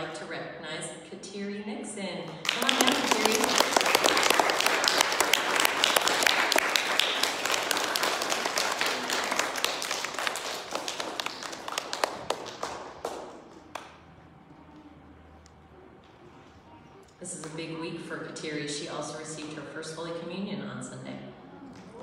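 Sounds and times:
audience applauding: 0:02.4 - 0:14.1.

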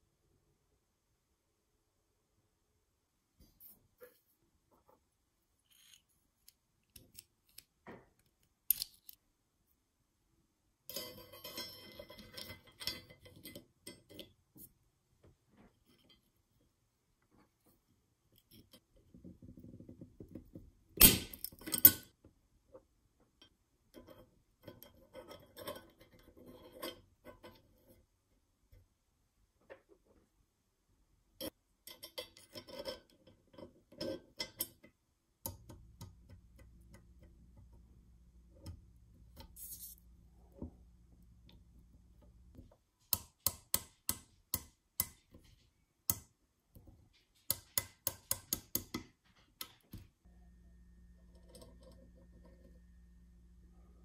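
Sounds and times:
metal parts clicking: 0:08.7 - 0:09.2
light metal scraping and rattling: 0:10.9 - 0:14.6.

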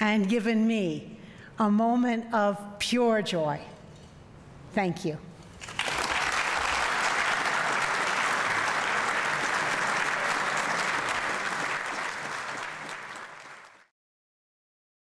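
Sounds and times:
audience applauding: 0:05.6 - 0:13.9.

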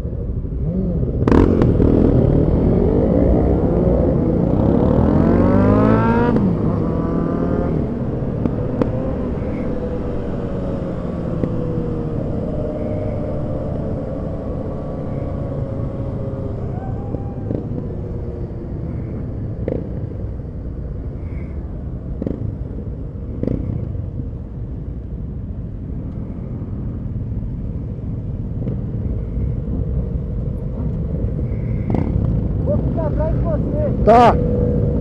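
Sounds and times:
wind and road rumble: 0:00.0 - 0:35.0
motorcycle engine cruising: 0:00.2 - 0:24.5.

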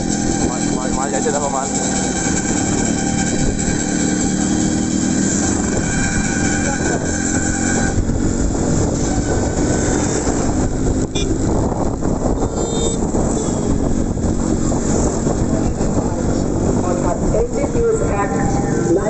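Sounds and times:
two-stroke motorcycle engine running: 0:00.0 - 0:19.0
wind and road noise: 0:00.0 - 0:19.0
short high beeps: 0:11.2 - 0:11.4.

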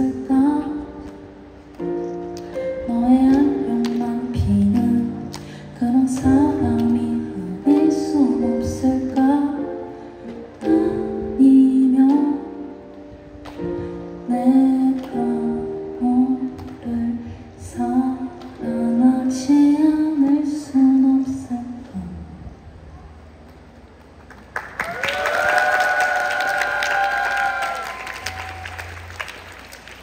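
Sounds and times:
woman singing: 0:00.0 - 0:01.3, 0:02.6 - 0:12.9, 0:14.2 - 0:22.4
electric keyboard chords: 0:00.0 - 0:21.8.

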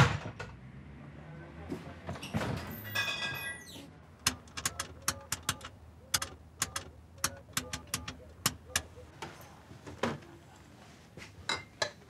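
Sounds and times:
brief squeak: 0:02.7 - 0:03.9
keypad button clicks and beeps: 0:04.2 - 0:09.0.

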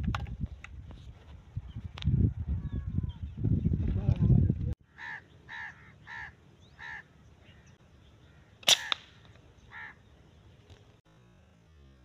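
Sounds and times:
bird calling: 0:04.8 - 0:10.5
rifle shot crack: 0:08.6 - 0:09.4.

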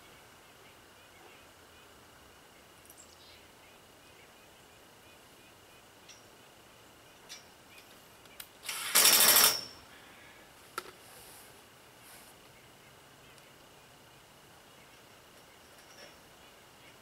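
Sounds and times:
power drill driving a screw: 0:08.6 - 0:09.7.

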